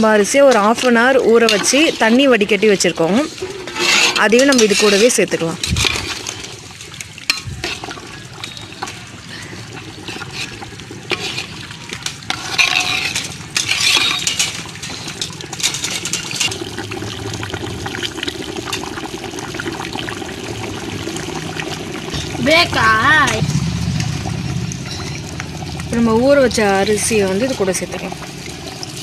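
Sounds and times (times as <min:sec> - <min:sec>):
water boiling and bubbling: 0:00.0 - 0:29.0
metal ladle clinking against pot: 0:03.6 - 0:06.4, 0:12.3 - 0:16.6.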